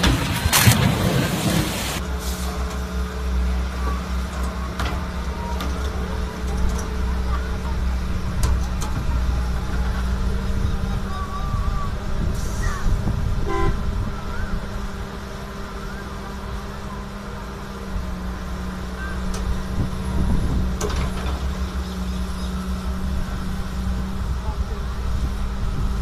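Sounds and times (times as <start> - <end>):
diesel excavator engine running: 0.0 - 26.0
short horn toot: 13.4 - 13.8.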